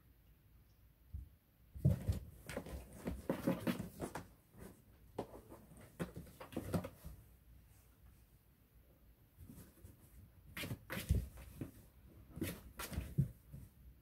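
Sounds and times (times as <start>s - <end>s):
cat scuffling with cardboard box: 1.8s - 7.3s, 9.4s - 13.8s.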